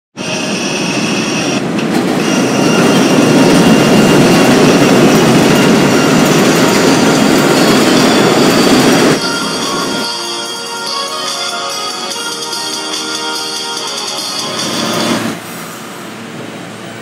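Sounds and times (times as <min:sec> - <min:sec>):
train wheels rumbling on rail: 0:00.2 - 0:11.2
high wheel squeal: 0:00.2 - 0:12.2.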